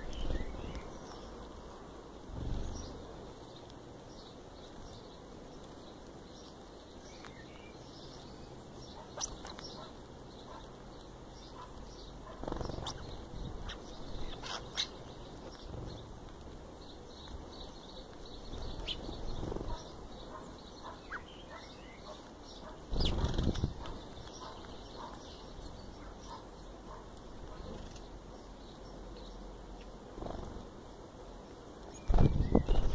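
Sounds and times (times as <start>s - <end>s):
bird chirps and clicks: 0.0s - 32.9s
bird wings flapping: 12.3s - 13.2s, 18.5s - 19.9s, 22.9s - 24.0s, 30.1s - 30.7s, 32.0s - 32.9s.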